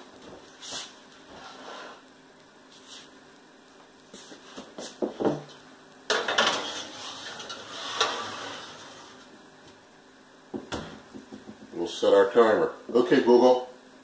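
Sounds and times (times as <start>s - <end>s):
metal pan clattering on rack: 6.1s - 8.3s.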